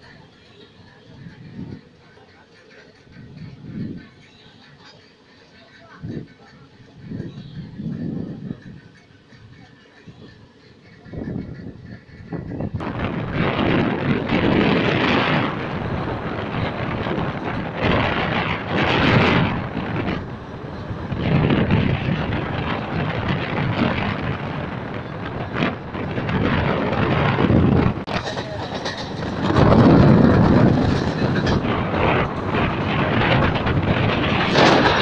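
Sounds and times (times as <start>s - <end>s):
moving train noise: 0.0s - 35.0s
wind rushing over microphone: 7.0s - 8.9s, 11.0s - 35.0s.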